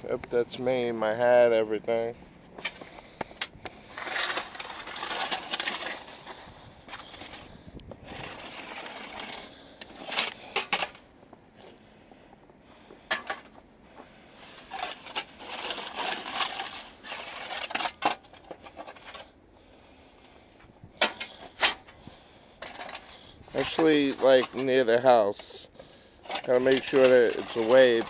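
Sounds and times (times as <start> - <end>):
snow shovel scraping snow: 3.9 - 10.7, 14.4 - 18.0, 22.7 - 24.8, 26.4 - 28.0.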